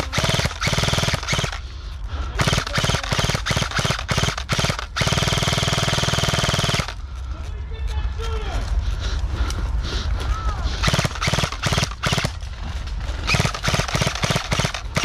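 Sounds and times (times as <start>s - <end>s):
airsoft rifle firing bursts: 0.0s - 1.6s, 2.4s - 7.0s, 10.8s - 12.4s, 13.2s - 15.0s.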